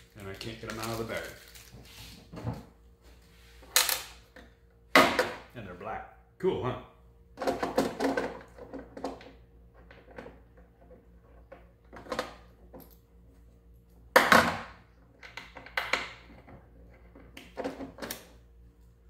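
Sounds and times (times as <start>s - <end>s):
clicks and rustles of small screws: 0.0s - 1.8s.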